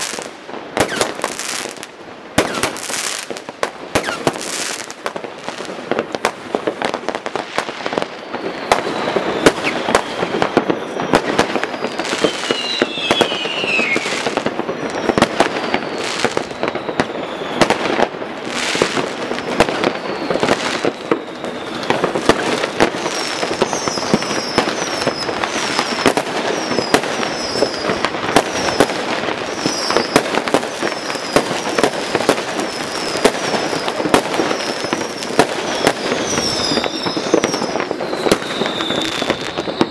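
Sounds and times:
falling firework whistle: 0.0s - 39.9s
fireworks bangs and crackles: 0.0s - 39.9s.

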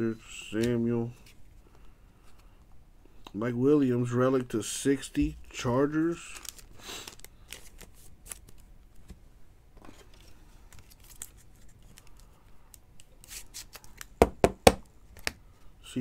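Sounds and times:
cards rubbing and sliding: 13.2s - 14.1s.

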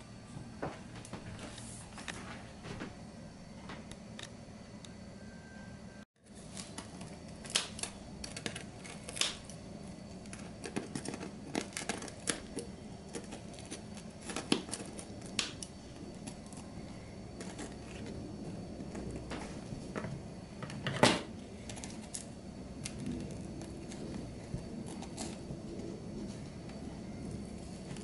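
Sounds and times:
kitchen shears snipping twine: 6.4s - 9.6s.

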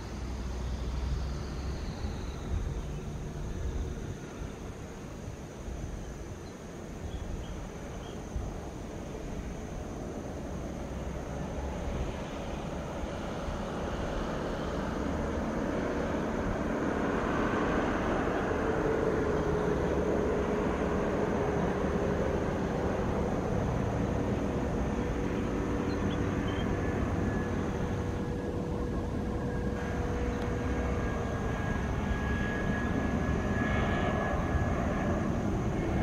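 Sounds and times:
jet airliner engines whine and rumble: 0.0s - 36.0s.

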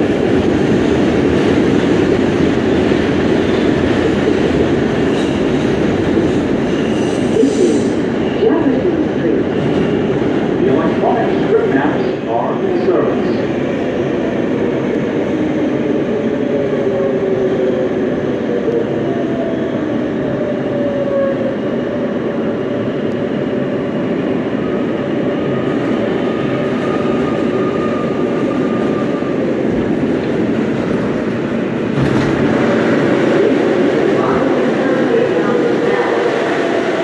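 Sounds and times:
wheels rumbling on rail: 0.0s - 37.0s.

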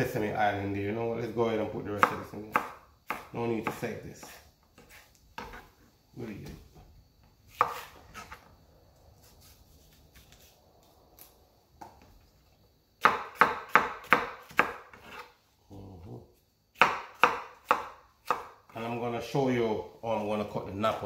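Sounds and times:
knife chopping on board: 2.0s - 5.6s, 7.5s - 8.3s, 13.0s - 15.3s, 16.8s - 18.5s
knife scraping: 3.6s - 5.8s, 7.5s - 8.5s, 9.2s - 10.6s, 14.9s - 15.4s.

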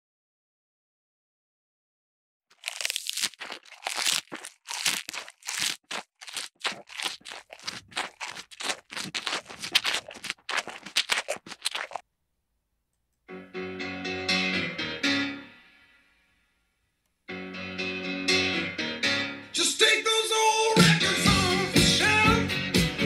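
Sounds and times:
short scratchy noises: 2.6s - 12.0s.

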